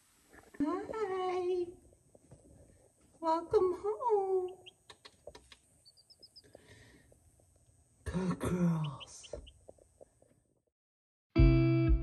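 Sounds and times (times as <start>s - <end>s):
chicks peeping: 4.4s - 6.8s, 8.8s - 9.8s.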